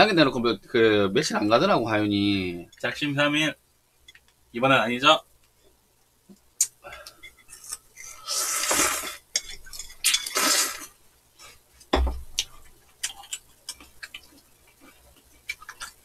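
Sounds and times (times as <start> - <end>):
noodle slurping: 7.6 - 9.2, 10.2 - 10.9.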